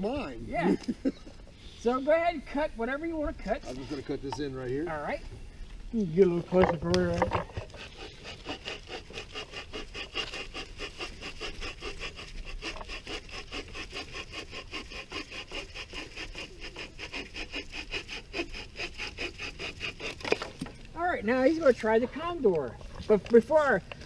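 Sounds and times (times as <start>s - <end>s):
pruning saw cutting branch: 6.6s - 20.8s.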